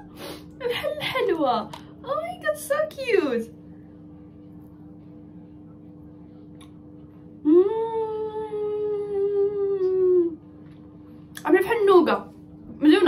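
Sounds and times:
woman humming mmm: 7.4 - 10.5.

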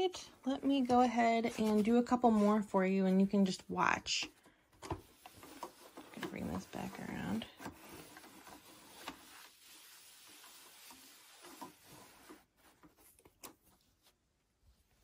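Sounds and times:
gloved hands rubbing fabric: 5.1 - 15.0.

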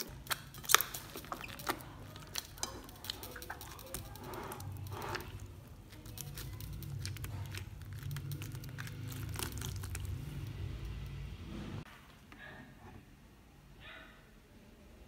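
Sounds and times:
slime squishing and crackling: 0.0 - 11.2
low rumble: 6.4 - 11.9.

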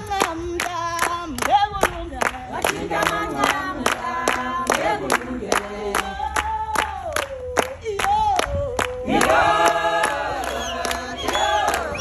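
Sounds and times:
group of people singing: 0.0 - 12.0
rhythmic hand clapping: 0.0 - 12.0.

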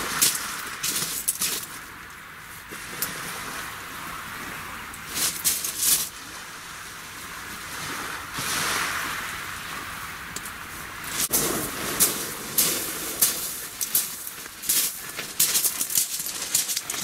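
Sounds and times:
wind along the shore: 0.0 - 17.0
surf hissing: 2.7 - 16.7.

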